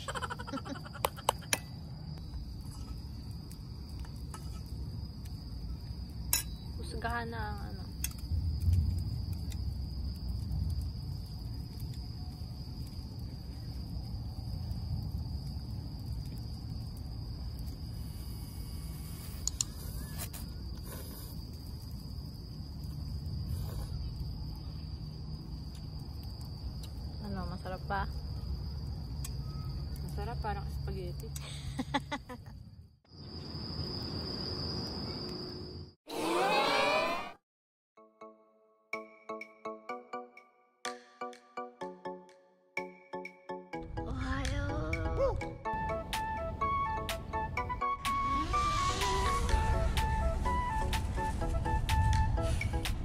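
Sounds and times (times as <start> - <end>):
crickets chirring: 0.0 - 36.0, 43.8 - 53.0
night insects trilling: 0.0 - 37.0, 48.1 - 51.6
low rumble: 48.2 - 53.0.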